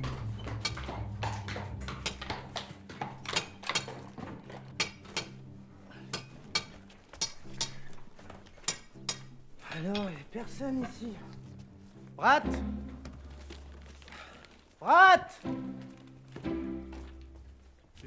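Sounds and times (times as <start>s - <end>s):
music: 0.0s - 18.0s.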